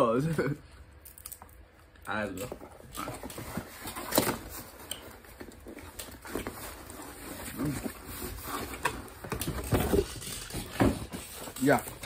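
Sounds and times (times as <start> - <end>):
cardboard flaps rustling: 2.5 - 12.0.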